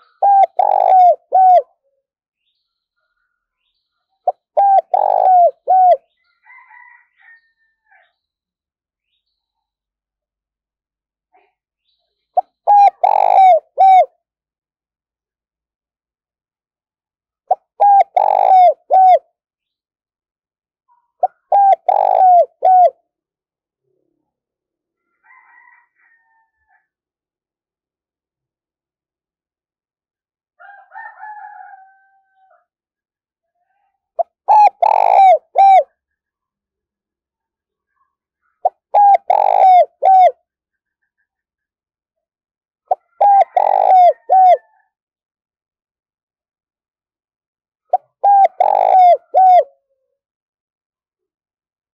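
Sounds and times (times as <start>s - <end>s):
dove cooing: 0.0s - 1.7s, 4.3s - 6.1s, 12.4s - 14.1s, 17.8s - 19.2s, 21.2s - 23.0s, 34.2s - 35.9s, 38.6s - 40.4s, 42.9s - 44.8s, 47.9s - 49.8s.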